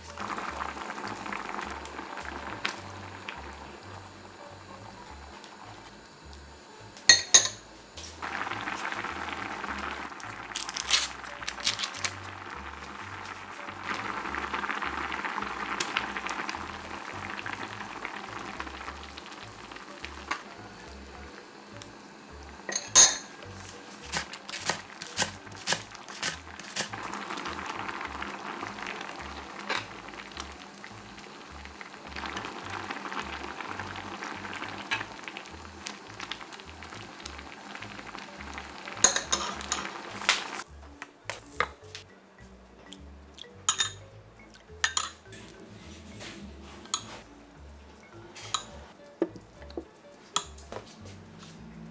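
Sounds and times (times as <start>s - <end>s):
stew bubbling in a pot: 0.0s - 40.7s
metal ladle clinking against pot: 7.1s - 7.6s, 22.7s - 23.4s, 43.7s - 44.0s, 44.8s - 45.2s.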